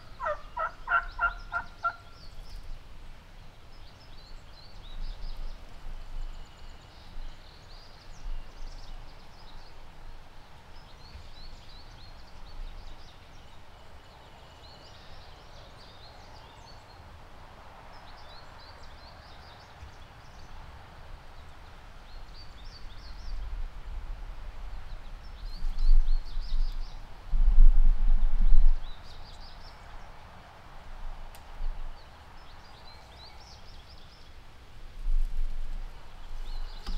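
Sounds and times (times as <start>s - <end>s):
songbird chirping: 0.0s - 24.0s, 31.3s - 36.9s
low rumbling microphone noise: 22.0s - 30.1s.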